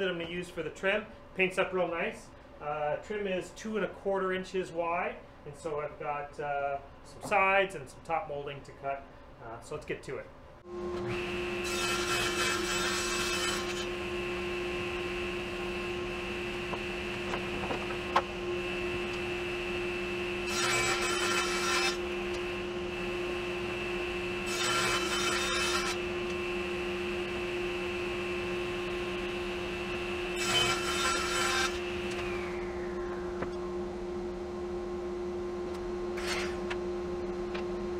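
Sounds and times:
table saw running: 0:10.7 - 0:33.6
table saw cutting plywood: 0:10.8 - 0:33.5, 0:36.1 - 0:36.8.

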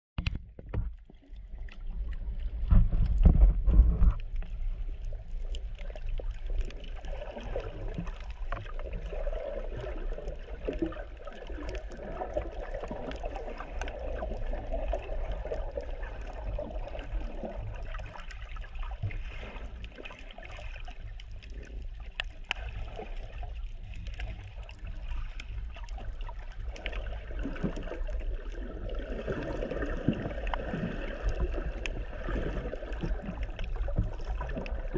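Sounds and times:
low rumble of water underwater: 0:00.2 - 0:34.9
water buffeting: 0:00.6 - 0:34.9
faint clicks: 0:19.1 - 0:26.0.

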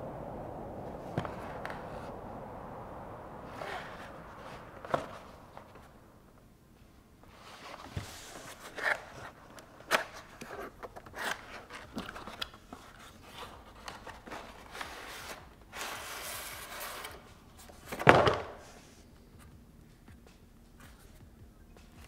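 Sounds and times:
cardboard sleeve sliding out: 0:07.3 - 0:17.2.

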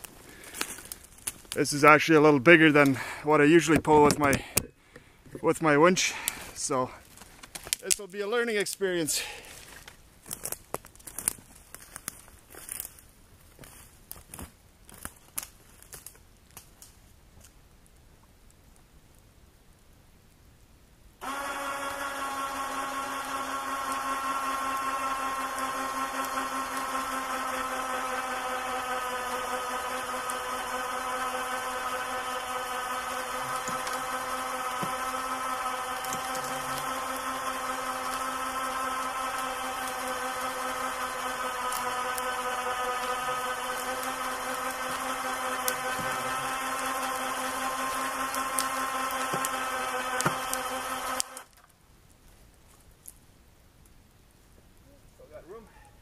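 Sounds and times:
electric winch motor whining: 0:21.2 - 0:51.5.

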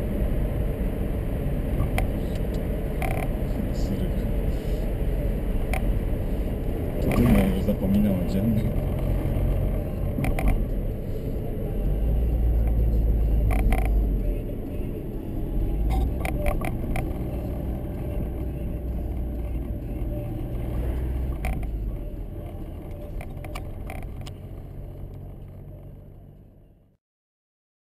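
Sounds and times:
car engine and tyres rumbling: 0:00.0 - 0:27.0.

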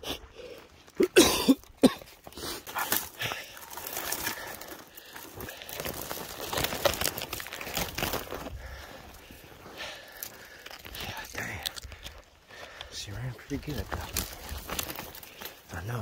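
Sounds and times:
twigs scraping clothing: 0:00.0 - 0:16.0
footsteps crunching in snow: 0:02.0 - 0:11.6.

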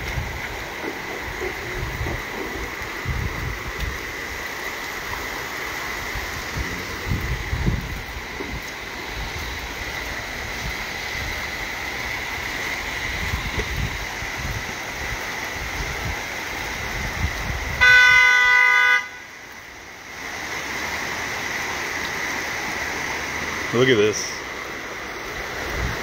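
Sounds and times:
rain and running floodwater: 0:00.0 - 0:26.0
car horn honk: 0:17.8 - 0:19.3.

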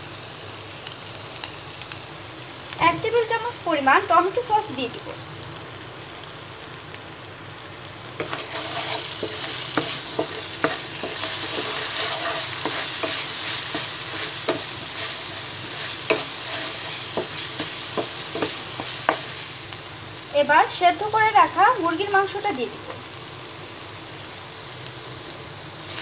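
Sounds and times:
spice paste sizzling in a pan: 0:00.0 - 0:26.0
wooden spatula scraping a pan: 0:08.2 - 0:19.5.

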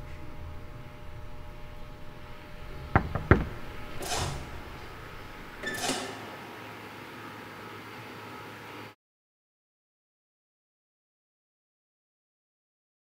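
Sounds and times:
sharp knocks: 0:02.8 - 0:04.4.

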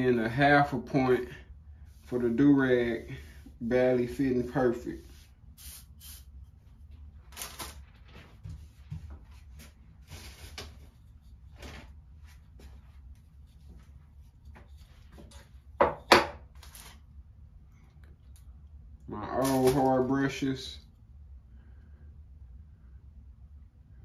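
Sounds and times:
rustling and handling noises: 0:06.6 - 0:15.8, 0:16.5 - 0:17.1.

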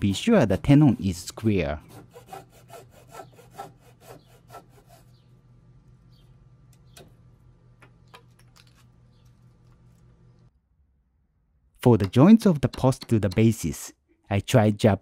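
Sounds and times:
hand saw cutting wood: 0:00.0 - 0:05.2.

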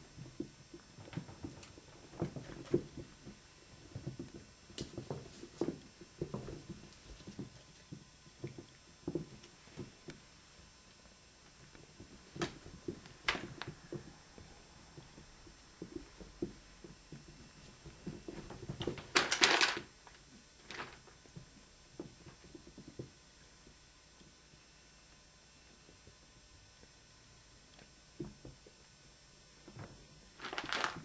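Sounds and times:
rustling and clicking: 0:10.9 - 0:23.2, 0:29.7 - 0:31.0.

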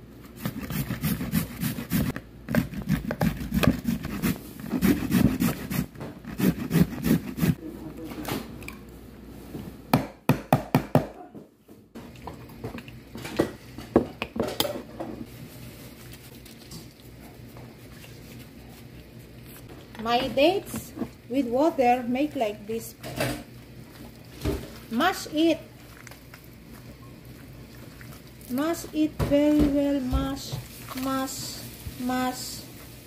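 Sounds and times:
carrot rasping on a grater: 0:00.4 - 0:07.6.

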